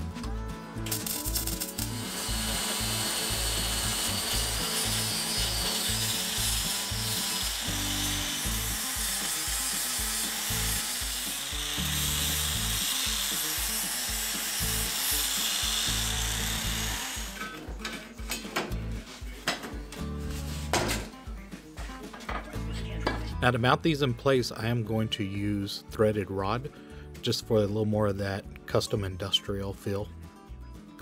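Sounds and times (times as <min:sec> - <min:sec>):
background music: 0:00.0 - 0:31.0
power tool cutting steel: 0:00.8 - 0:17.8.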